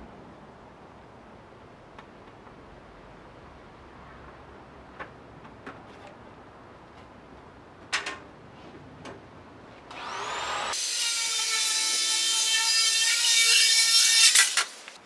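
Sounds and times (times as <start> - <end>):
power tool cutting aluminium: 9.9 - 15.0.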